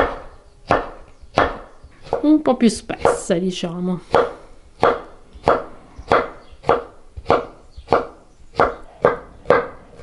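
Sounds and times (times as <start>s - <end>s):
knife slicing vegetables on board: 0.0s - 3.2s
blade knocking on wooden board: 4.1s - 9.8s.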